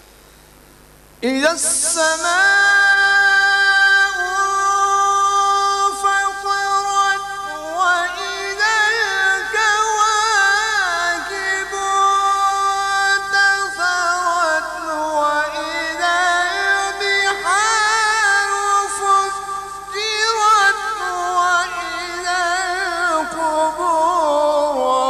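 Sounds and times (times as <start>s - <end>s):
man reciting melodically: 1.2s - 25.0s.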